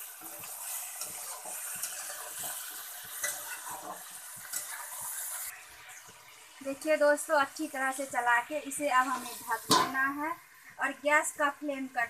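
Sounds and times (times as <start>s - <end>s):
chicken and onions sizzling: 0.0s - 12.0s
metal spatula scraping pan: 0.1s - 6.0s.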